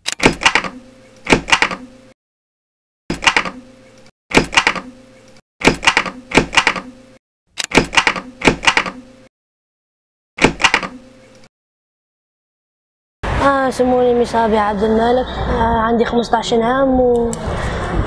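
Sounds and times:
rapid mechanical clicking: 0.0 - 1.8, 3.1 - 3.6, 4.3 - 4.9, 5.6 - 6.9, 7.6 - 9.0, 10.4 - 11.0.

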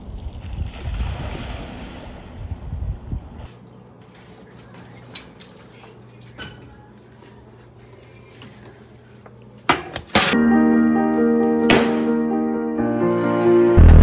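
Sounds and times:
music: 10.4 - 14.0.

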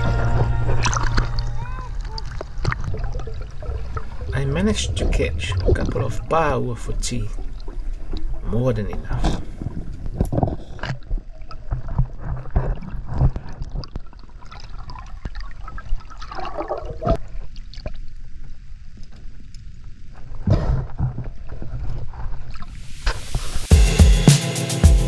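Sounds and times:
rush of water: 0.0 - 10.2
underwater rumble of water: 0.0 - 23.7
bubbling gurgle: 0.3 - 9.8, 10.9 - 18.1.

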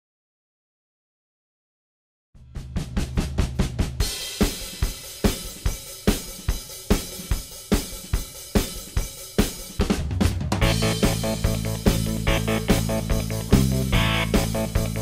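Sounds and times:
rock drum beat: 2.4 - 15.0
bass and guitar: 10.6 - 15.0.

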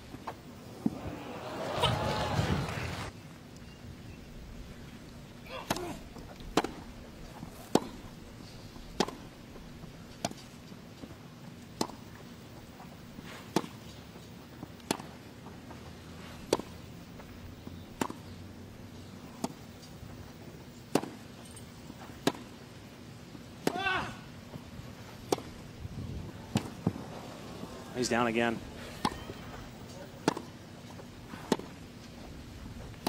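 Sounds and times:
tennis ball hit by rackets: 5.6 - 6.8, 7.5 - 8.1, 9.0 - 9.3, 11.8 - 12.1, 13.5 - 13.8, 14.8 - 15.2, 16.5 - 16.8, 18.0 - 18.3, 19.4 - 19.6, 20.9 - 21.2, 22.2 - 22.5, 23.6 - 24.0, 25.2 - 25.6, 26.4 - 27.1, 28.9 - 29.5, 30.2 - 30.6, 31.4 - 31.8.

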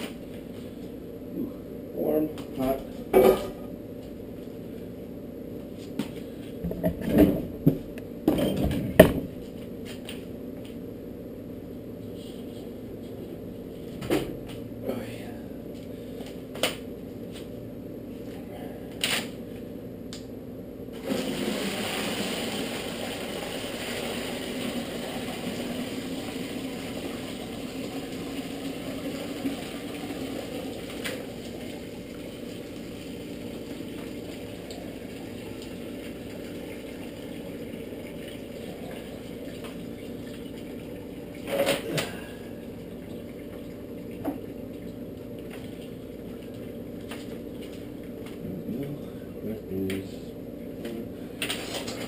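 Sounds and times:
liquid pouring and splashing: 21.0 - 41.8.

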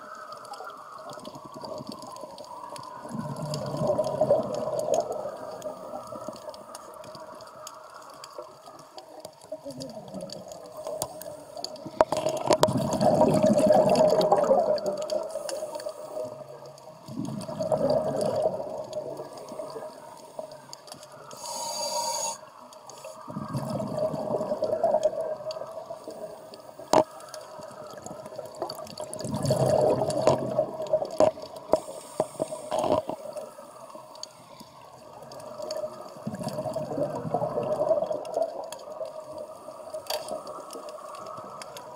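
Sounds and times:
regulator bubbles gurgling underwater: 0.0 - 41.9.

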